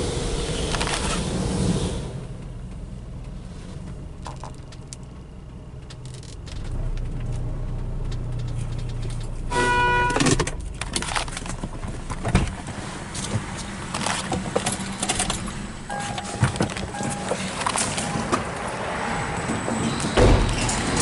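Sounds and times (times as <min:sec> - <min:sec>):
car wash machinery humming: 0:11.8 - 0:21.0
short electronic beep: 0:15.9 - 0:17.4
loud thump: 0:20.2 - 0:21.0.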